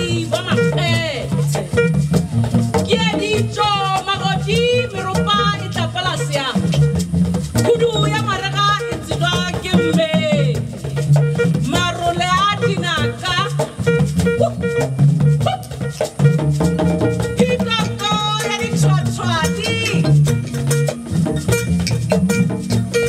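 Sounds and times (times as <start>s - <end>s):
woman singing: 0.0s - 1.4s, 2.9s - 6.8s, 7.6s - 10.7s, 11.6s - 14.7s, 17.4s - 20.2s
pulsing bass line: 0.0s - 23.0s
shaker: 0.0s - 23.0s.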